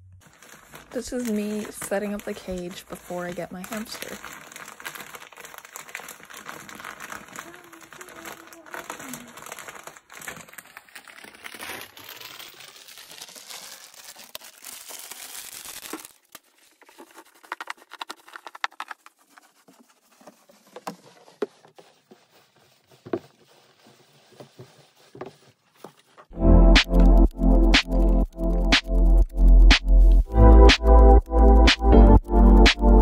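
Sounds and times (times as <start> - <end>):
paper bedding rustling and crackling: 0.2 - 26.3.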